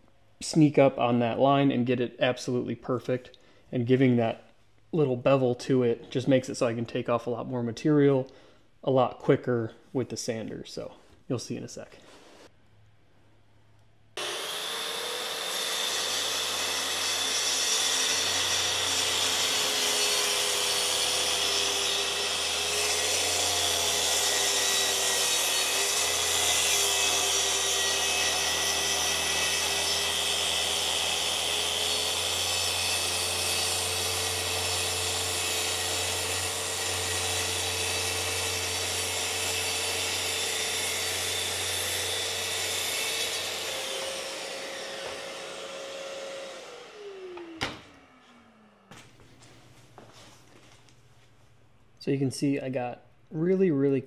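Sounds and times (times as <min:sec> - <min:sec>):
track saw cutting wood: 0:14.2 - 0:49.0.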